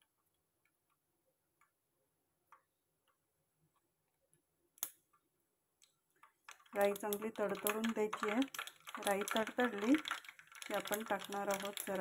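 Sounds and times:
mustard seeds popping in oil: 6.2 - 12.0.

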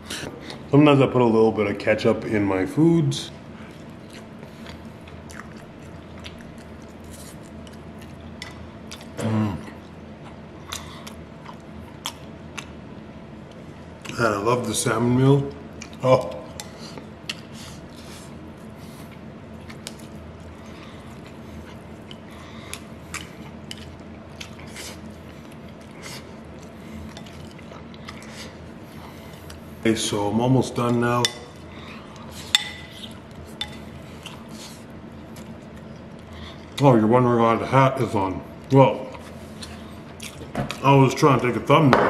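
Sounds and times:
low steady hum: 0.0 - 42.0
man chewing: 3.5 - 14.2, 15.5 - 29.8, 31.5 - 36.8, 38.6 - 40.8
man humming: 9.2 - 9.8.

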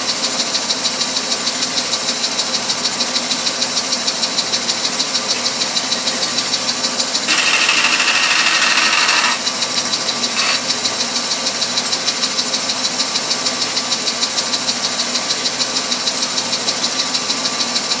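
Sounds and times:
bandsaw running: 7.2 - 11.3
short scrape: 7.3 - 10.7
bandsaw blade cutting metal: 7.3 - 11.1.

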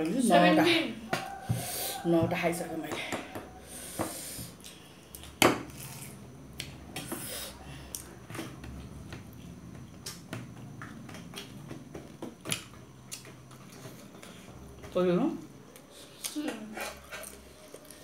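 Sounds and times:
chewing: 9.4 - 14.7, 15.7 - 18.0.

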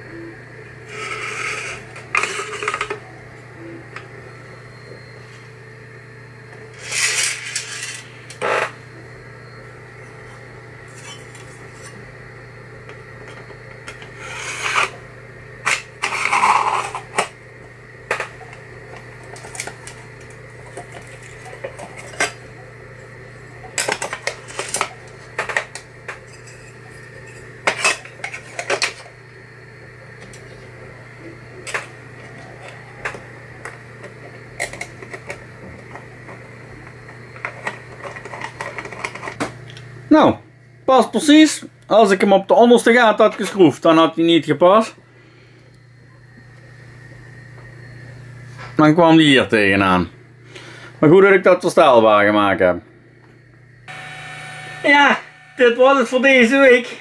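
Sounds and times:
low hum: 53.0 - 56.2.

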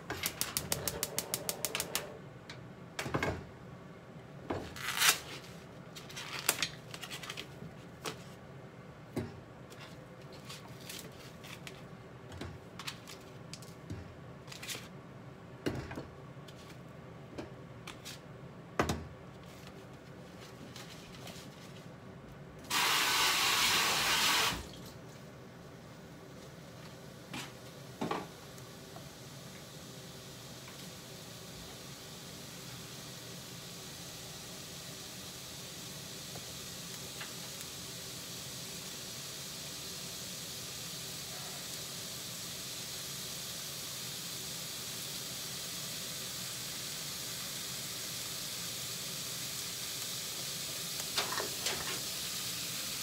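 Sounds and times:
tap water running: 22.7 - 25.0, 35.1 - 53.0.

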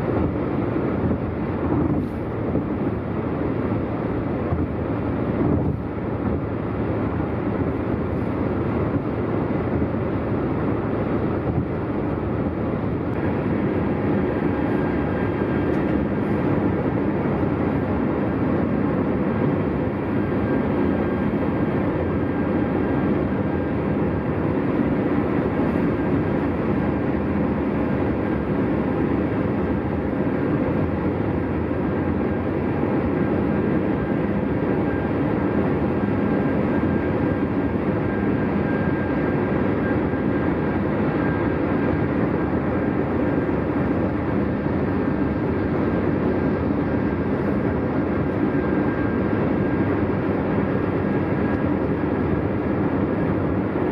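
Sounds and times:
car road and tyre noise: 0.0 - 53.9
faint high whine: 10.8 - 53.9.

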